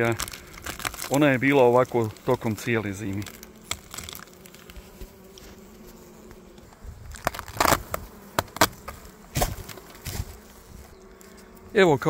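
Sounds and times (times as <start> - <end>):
honeybees buzzing: 0.0 - 12.0
sharp rustles and knocks: 7.1 - 10.9.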